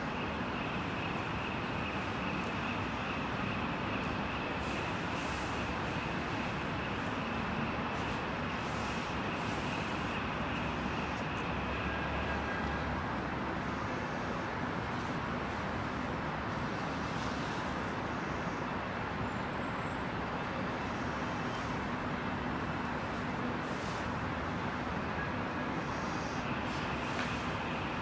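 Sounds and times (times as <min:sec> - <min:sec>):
city traffic hum: 0:00.0 - 0:28.0.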